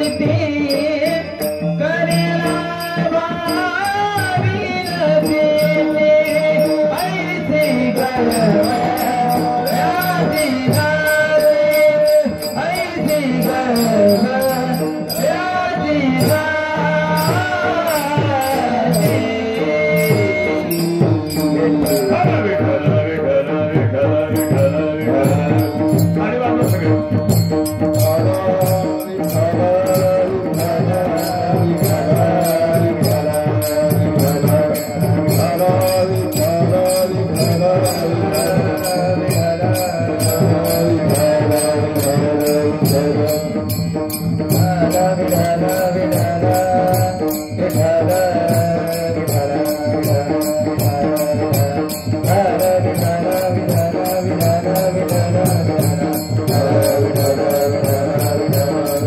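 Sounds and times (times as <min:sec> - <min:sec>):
hand cymbals clashing: 0:00.0 - 0:22.9, 0:24.3 - 0:59.0
chanted melody: 0:00.0 - 0:59.0.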